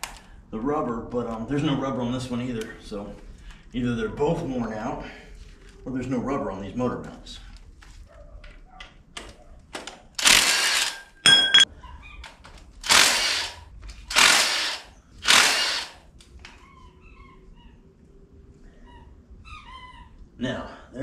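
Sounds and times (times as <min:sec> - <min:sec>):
impact wrench hammering: 0:11.2 - 0:11.7.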